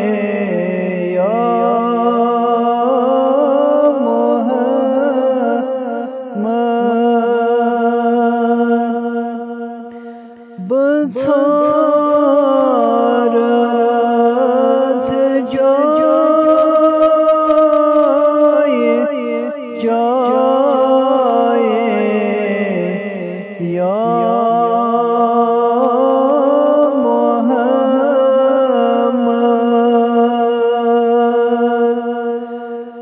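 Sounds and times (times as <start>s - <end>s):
man singing devotional song: 0.0s - 33.0s.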